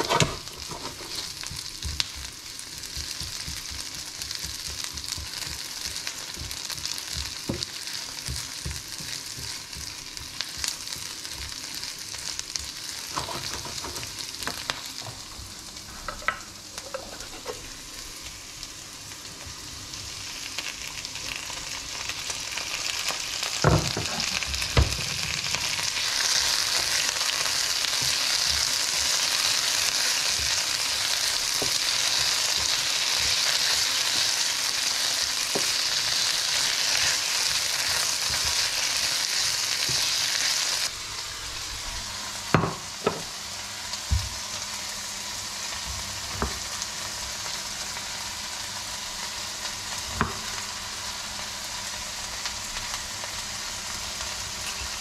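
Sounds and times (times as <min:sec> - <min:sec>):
spoon stirring in a pan: 0:00.0 - 0:11.6
meat and peppers sizzling in a pan: 0:00.0 - 0:55.0.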